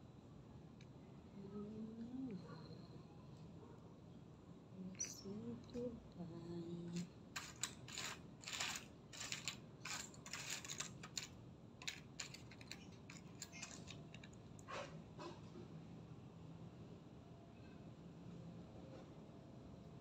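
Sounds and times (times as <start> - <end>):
plastic pieces clattering: 7.0 - 14.4.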